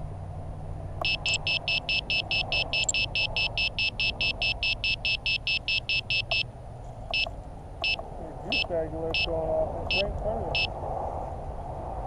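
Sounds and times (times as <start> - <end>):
steady low hum: 0.0 - 12.0
rapid high-pitched electronic beeping: 1.0 - 6.4, 7.1 - 9.3, 9.9 - 10.7.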